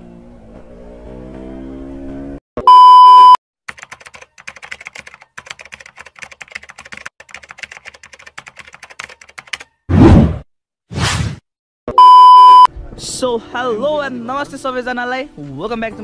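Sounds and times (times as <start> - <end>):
test-tone beep: 2.6 - 3.4, 11.9 - 12.7
keyboard typing clicks: 3.7 - 9.7.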